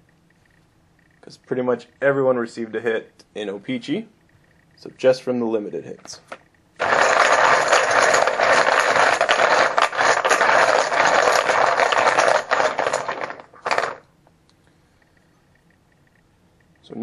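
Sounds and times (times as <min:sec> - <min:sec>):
poker chips clattering: 0:06.8 - 0:14.0.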